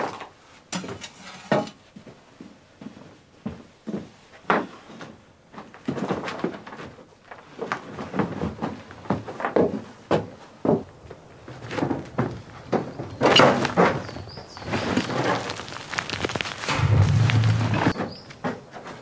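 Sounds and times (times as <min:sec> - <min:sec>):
footsteps on dirt: 0:11.5 - 0:18.4
wheelbarrow rattling and clunking: 0:11.5 - 0:19.0.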